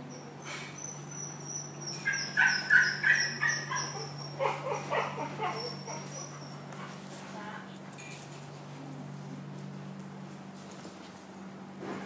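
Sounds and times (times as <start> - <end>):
small dog yipping: 0.1 - 6.6.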